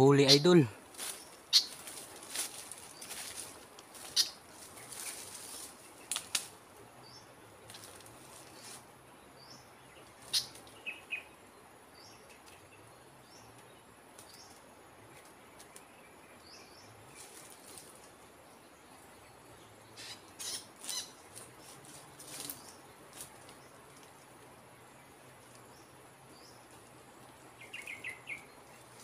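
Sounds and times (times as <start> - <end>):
small high bird chirps: 27.6 - 29.0.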